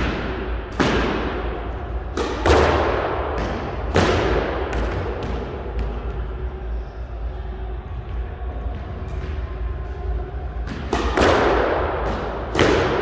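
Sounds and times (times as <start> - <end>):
steady low hum: 0.0 - 13.0
squash ball smacking off walls: 2.1 - 5.9.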